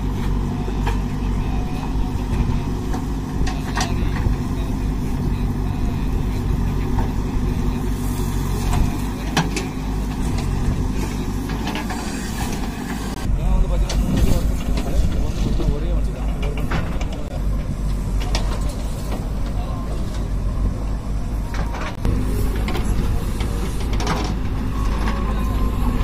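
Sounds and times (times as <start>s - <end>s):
diesel engine running under load: 0.0s - 26.0s.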